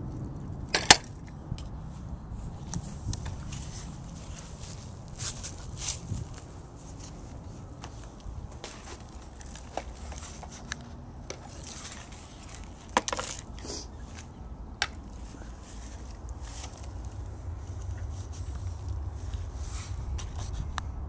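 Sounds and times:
plastic shovels scraping dirt: 8.6s - 14.3s.

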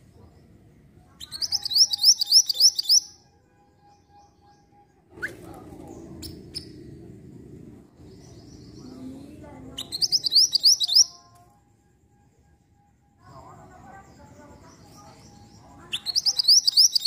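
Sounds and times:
bird chirps: 1.1s - 3.2s, 8.0s - 11.3s, 13.3s - 17.0s.

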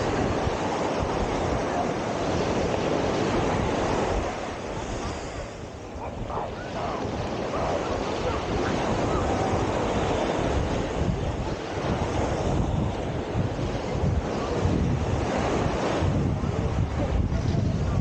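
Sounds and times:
surf washing on sandy beach: 0.0s - 18.0s
wind rumbling on microphone: 0.0s - 18.0s.

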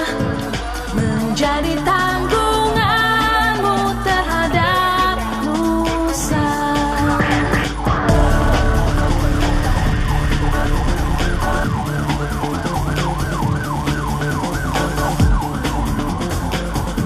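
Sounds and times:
police siren wailing: 7.2s - 17.0s.

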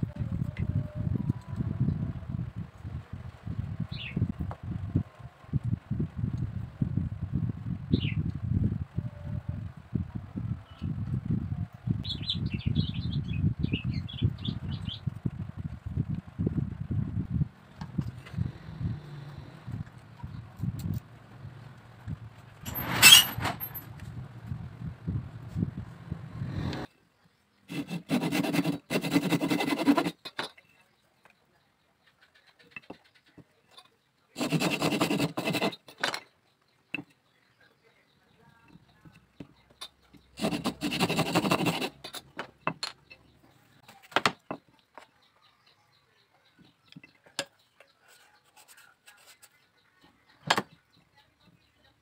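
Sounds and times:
hand saw cutting bamboo: 22.7s - 23.7s, 27.7s - 30.2s, 34.4s - 35.9s, 40.4s - 42.2s.

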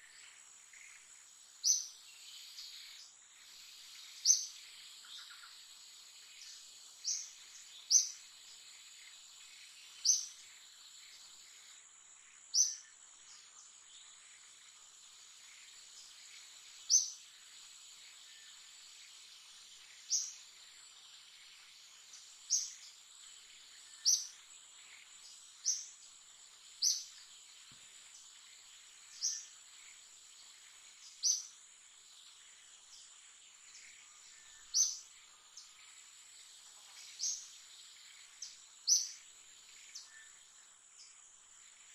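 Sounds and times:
high insect hum: 0.0s - 41.9s.

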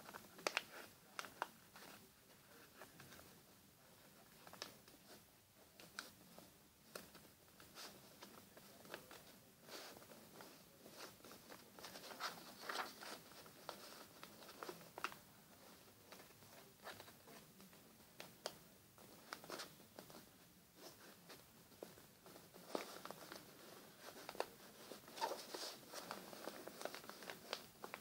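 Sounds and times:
paper being folded and creased: 6.8s - 17.4s, 22.4s - 28.0s.

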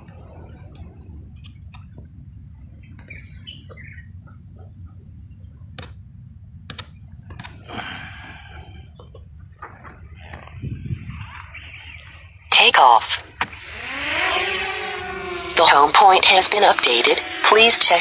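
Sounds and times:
sharp clicks: 6.7s - 7.6s
wind rumble on microphone: 8.7s - 12.4s.

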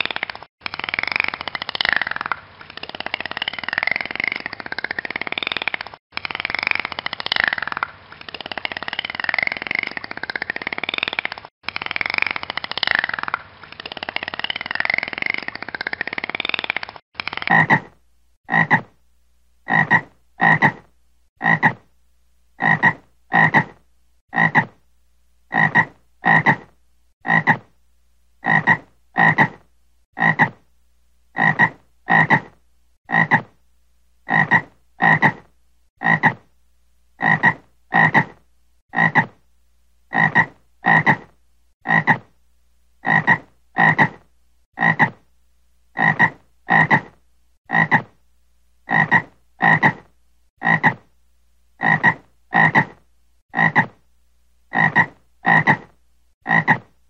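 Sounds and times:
frog croaking: 19.7s - 20.8s, 21.4s - 21.8s, 22.6s - 24.8s, 25.5s - 27.7s, 28.4s - 29.6s, 30.2s - 30.6s, 31.4s - 32.5s, 33.1s - 33.6s, 34.3s - 36.5s, 37.2s - 39.4s, 40.1s - 42.3s, 43.0s - 44.2s, 44.8s - 45.2s, 46.0s - 48.2s, 48.9s - 51.1s, 51.8s - 54.0s, 54.7s - 56.9s.

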